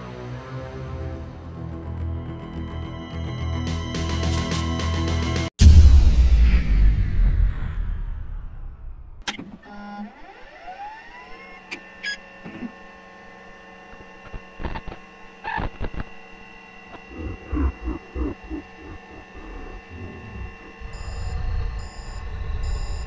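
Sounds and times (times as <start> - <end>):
rising electronic whine: 10.0 - 23.0
electrical hum: 10.8 - 23.0
pulsing blips: 15.4 - 23.0
short beeps: 20.8 - 23.0.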